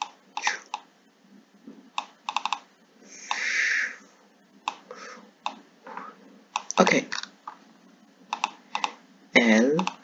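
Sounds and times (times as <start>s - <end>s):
mouse and keyboard clicks: 2.0s - 2.7s, 4.6s - 4.8s, 6.5s - 7.6s, 8.3s - 9.0s, 9.8s - 10.0s
short hiss: 3.1s - 4.0s.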